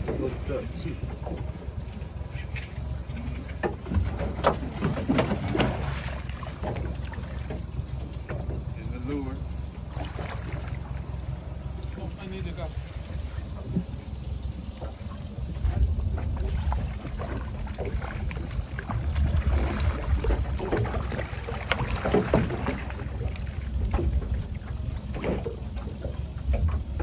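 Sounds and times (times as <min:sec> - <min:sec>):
water washing against hull: 0:00.0 - 0:27.0
wind buffeting microphone: 0:10.0 - 0:27.0.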